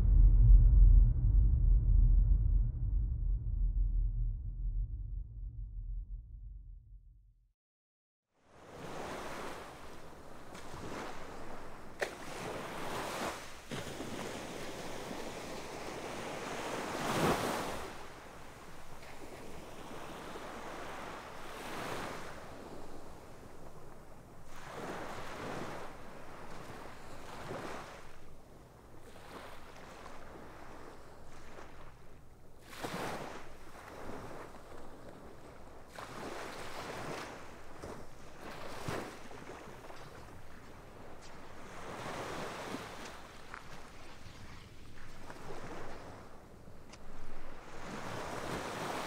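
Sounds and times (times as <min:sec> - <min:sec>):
wind noise on microphone: 0:00.0 - 0:06.7
small waves breaking on sand: 0:08.4 - 0:49.0.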